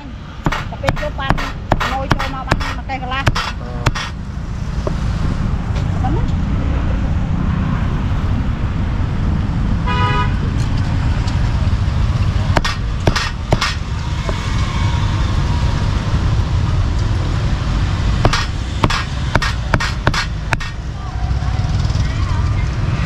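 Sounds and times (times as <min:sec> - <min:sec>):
street traffic rumble: 0:00.0 - 0:23.0
cleaver chopping meat on board: 0:00.4 - 0:04.2, 0:12.6 - 0:14.4, 0:18.2 - 0:20.8
vehicle horn toot: 0:09.8 - 0:10.4.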